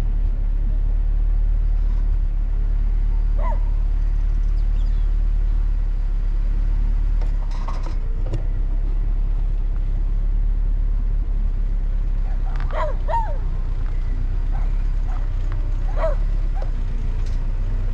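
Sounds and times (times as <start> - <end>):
car rumbling on the move: 0.0 - 17.9
short rattle: 7.2 - 8.6.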